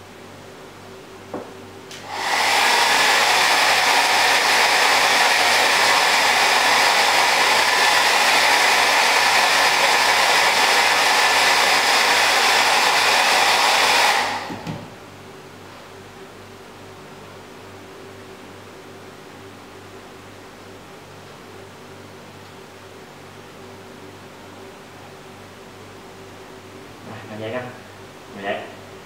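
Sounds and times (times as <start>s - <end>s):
hair dryer blowing: 1.9s - 15.0s.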